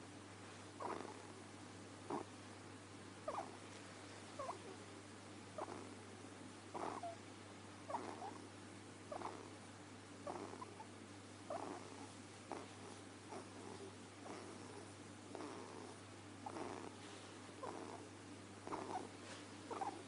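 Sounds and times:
ferret snoring squeakily: 0.8s - 1.4s, 2.0s - 2.3s, 3.2s - 3.6s, 4.4s - 4.8s, 5.6s - 6.0s, 6.7s - 7.2s, 7.9s - 8.5s, 9.1s - 9.6s, 10.2s - 10.9s, 11.5s - 20.0s.

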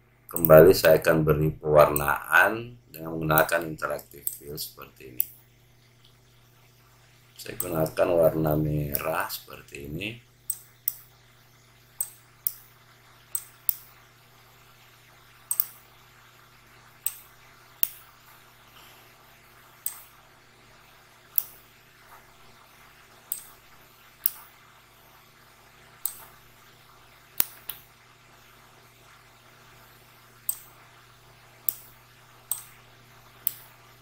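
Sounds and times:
faint low hum: 0.0s - 34.0s
computer mouse button clicking: 15.5s - 15.8s.

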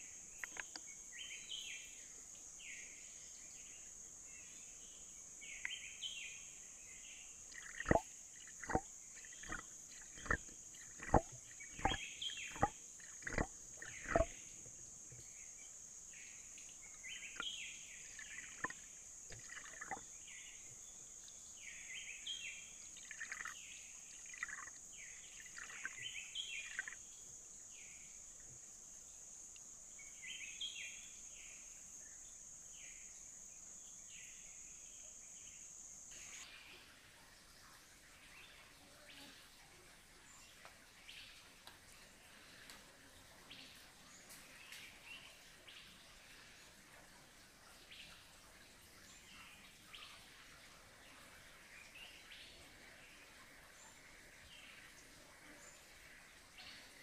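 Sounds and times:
insect drone: 0.0s - 20.6s, 21.5s - 36.8s
bird calls: 7.5s - 14.4s, 17.1s - 20.0s, 23.0s - 23.6s, 24.2s - 27.0s.

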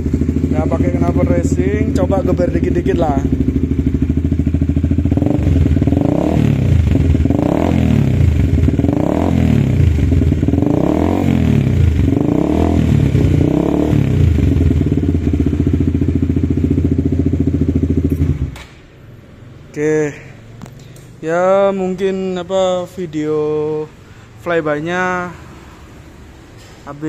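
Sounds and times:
motorcycle engine revving: 0.0s - 19.7s.

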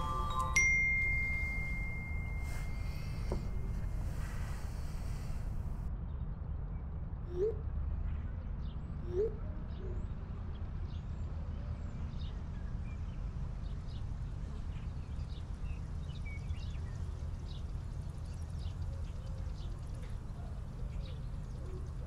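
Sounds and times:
low rising call: 0.0s - 5.7s
low room hum: 0.0s - 5.9s.

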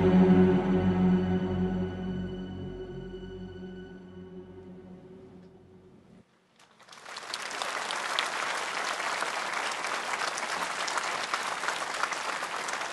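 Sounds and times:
held music chord: 0.0s - 6.2s
audience applause: 6.6s - 12.9s.

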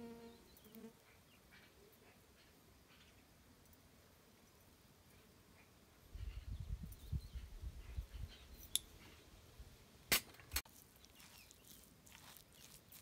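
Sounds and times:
spoon stirring salad in plastic bowl: 10.6s - 13.0s.

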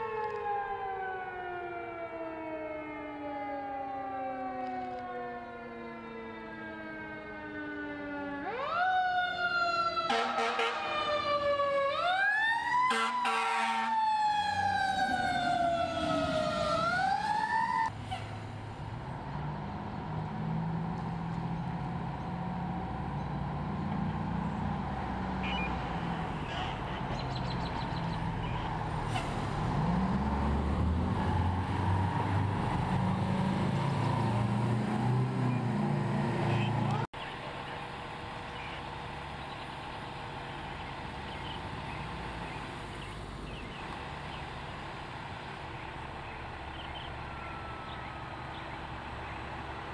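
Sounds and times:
siren wailing: 0.0s - 17.9s, 47.1s - 48.4s
truck engine rumbling: 4.6s - 49.9s.

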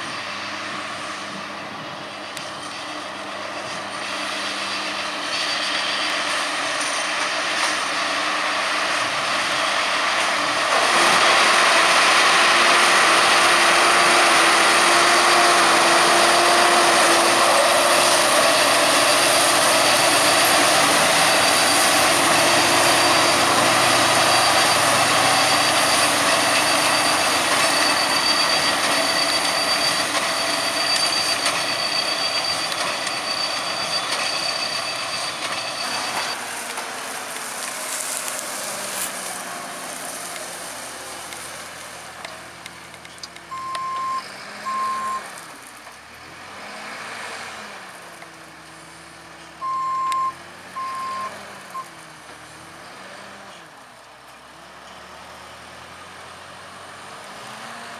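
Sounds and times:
tractor engine drone: 0.0s - 57.9s
steady high whine: 14.3s - 45.8s.

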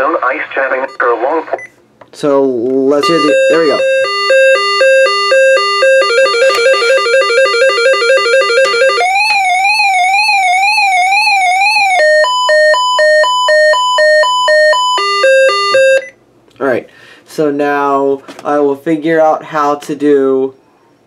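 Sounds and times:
alternating two-pitch beeps: 3.0s - 9.8s, 11.8s - 16.2s
warbling alert tone: 3.0s - 16.1s.

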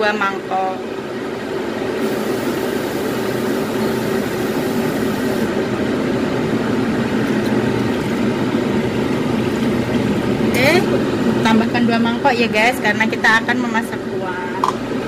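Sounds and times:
steady machine hum: 0.0s - 15.0s
water hissing in hot wok: 2.0s - 5.5s.

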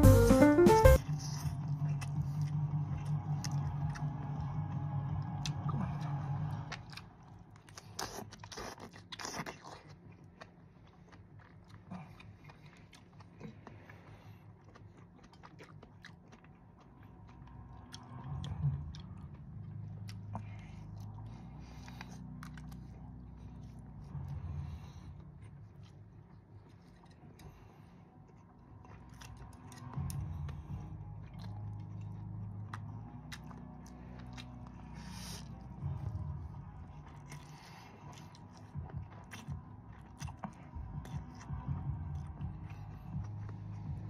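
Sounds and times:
background music: 0.0s - 1.2s, 29.1s - 44.0s
chewing: 1.1s - 44.0s.

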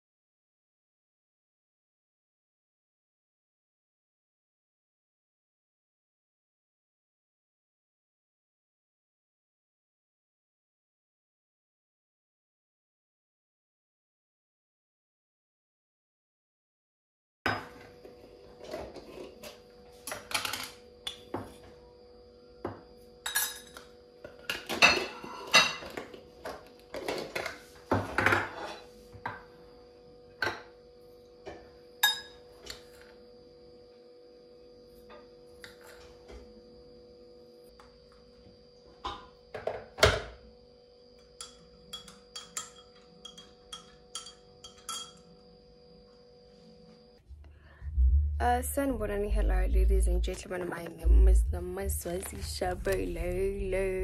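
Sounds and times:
mug set on stone countertop: 17.5s - 17.9s, 30.4s - 30.7s
faint steady hum: 17.6s - 54.0s
metal spoon tapping glass mug: 41.2s - 45.3s
jar lid and jar clinking: 41.4s - 45.3s.

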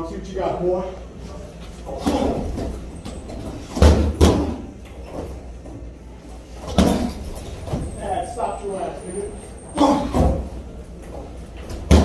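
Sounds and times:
kicks thudding on heavy bag: 11.8s - 12.0s.

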